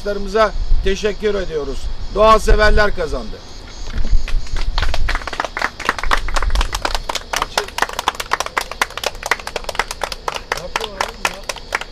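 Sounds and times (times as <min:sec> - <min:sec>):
people clapping: 0:04.2 - 0:11.9.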